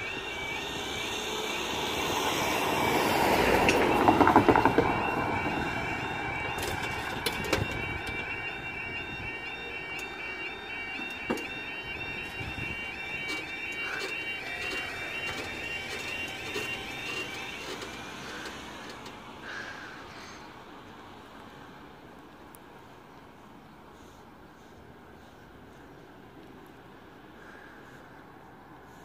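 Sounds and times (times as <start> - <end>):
level crossing alarm warbling: 0.0 - 19.8.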